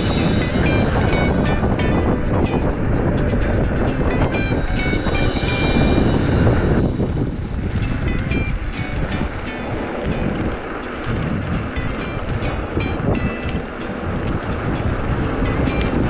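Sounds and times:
faint tune of high notes: 0:00.0 - 0:09.9
bike tyre rumble on pavement: 0:00.0 - 0:16.0
wind buffeting microphone: 0:00.0 - 0:16.0.

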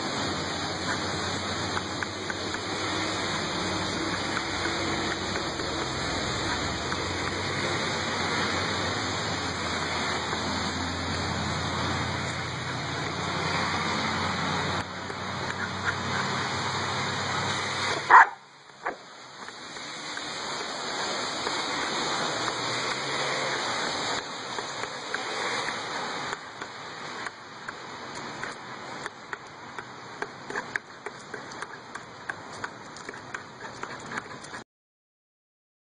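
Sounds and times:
steady rain falling: 0:00.0 - 0:33.4
dog barking: 0:18.0 - 0:19.0.

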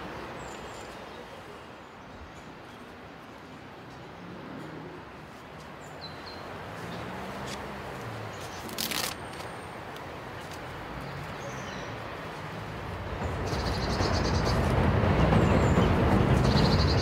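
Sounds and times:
rustling: 0:08.4 - 0:09.5.

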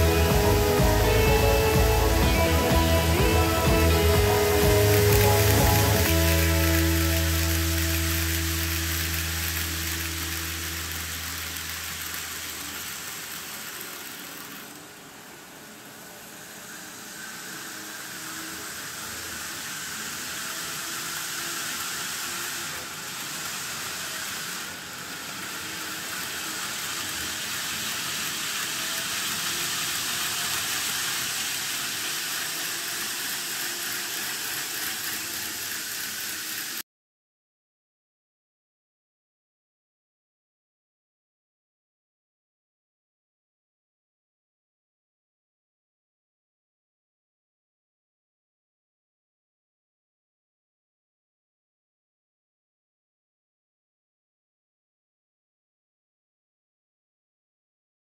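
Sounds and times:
model train wheels hissing on track: 0:00.0 - 0:36.8.

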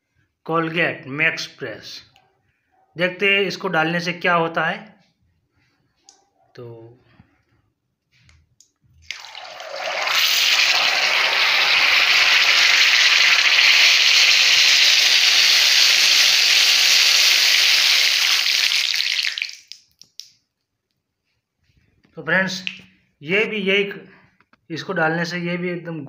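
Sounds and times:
hot oil sizzling: 0:09.1 - 0:19.7.

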